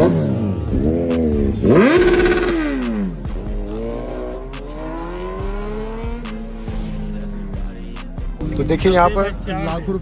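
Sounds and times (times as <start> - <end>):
motorbike engine accelerating: 0.0 - 7.6.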